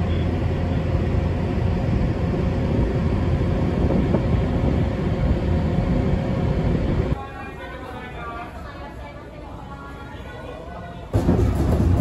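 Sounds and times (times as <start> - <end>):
ship engines humming: 0.0 - 8.3
wind buffeting microphone: 0.2 - 7.2.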